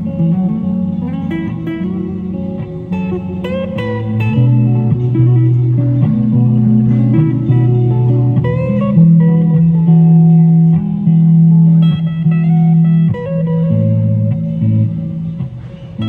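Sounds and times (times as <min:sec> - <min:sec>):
solo guitar playing: 0:00.0 - 0:16.0.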